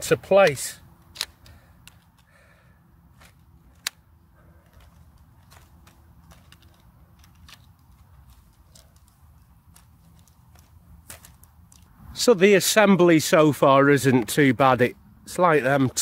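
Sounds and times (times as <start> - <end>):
tent poles snapping into joints: 1.0 - 2.3, 3.1 - 4.1, 4.7 - 11.9.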